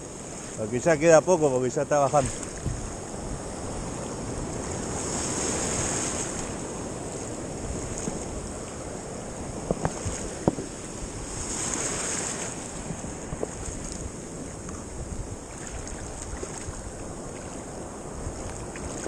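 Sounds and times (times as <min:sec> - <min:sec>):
surf washing on beach: 0:00.0 - 0:19.0.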